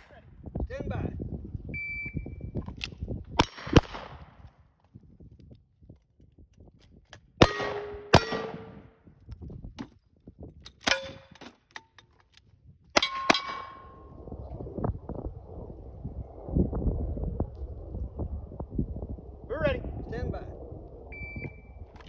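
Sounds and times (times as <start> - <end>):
gunshots: 3.4 - 4.3, 7.4 - 8.8
steel target clanging: 13.0 - 13.8.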